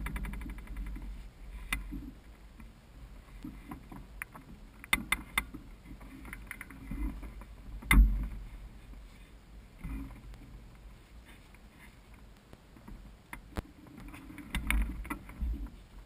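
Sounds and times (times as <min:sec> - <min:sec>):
clicks and knocks from frame: 0:03.4 - 0:08.4, 0:12.8 - 0:15.8.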